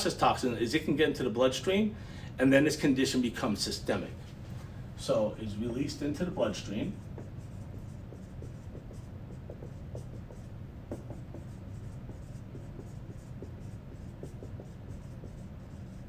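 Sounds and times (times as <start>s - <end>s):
steady low hum: 0.0s - 16.0s
marker squeaking on whiteboard: 6.5s - 16.0s.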